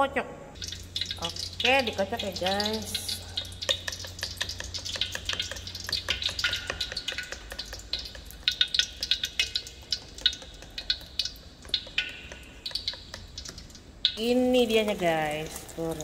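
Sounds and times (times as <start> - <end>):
spoon clicking against plastic bowl: 3.6 - 13.7.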